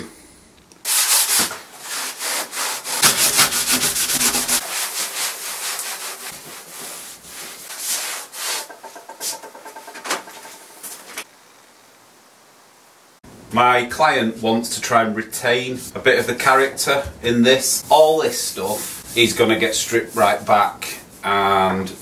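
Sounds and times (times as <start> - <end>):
cloth scrubbing wooden seat: 0.9 - 9.6, 17.6 - 22.0.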